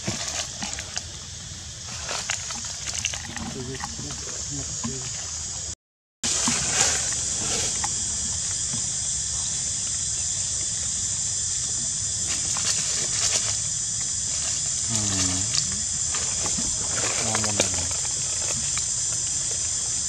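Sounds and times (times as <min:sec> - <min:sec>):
high-pitched insect drone: 0:06.3 - 0:20.0.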